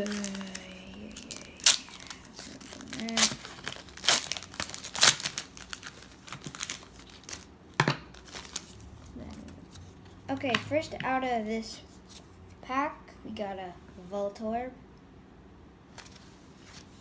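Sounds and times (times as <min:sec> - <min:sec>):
foil ripping: 0:00.0 - 0:07.5, 0:08.1 - 0:08.7
foil wrapper crinkling: 0:00.0 - 0:07.5, 0:08.1 - 0:08.7.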